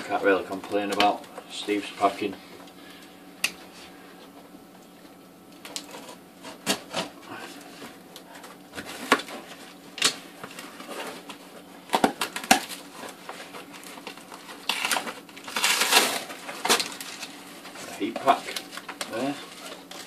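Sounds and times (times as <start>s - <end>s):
cardboard scraping and rustling: 10.4s - 11.6s
knife slitting packing tape: 14.6s - 17.0s.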